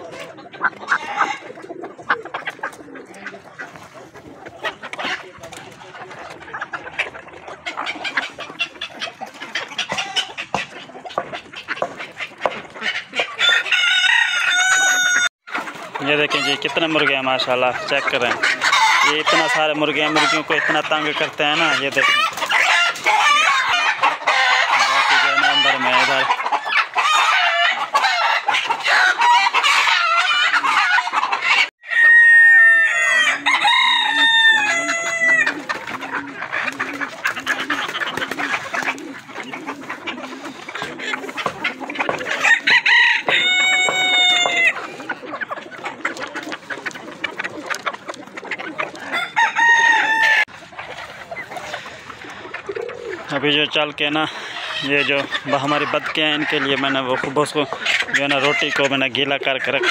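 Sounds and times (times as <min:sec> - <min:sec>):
chickens clucking: 0:00.0 - 0:59.9
roosters crowing: 0:00.0 - 0:59.9
rooster crowing: 0:13.4 - 0:15.3, 0:31.8 - 0:35.5, 0:42.4 - 0:44.8, 0:49.1 - 0:50.5.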